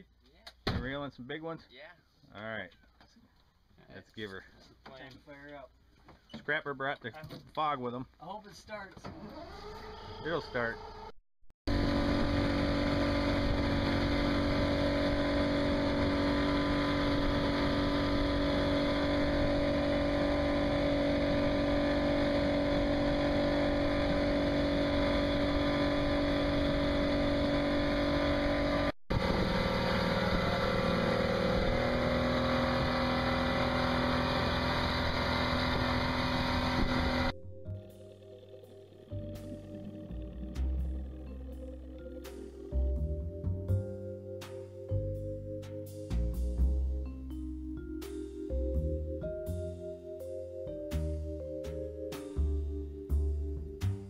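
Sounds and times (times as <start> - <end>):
boat motor droning: 11.7 - 44.0.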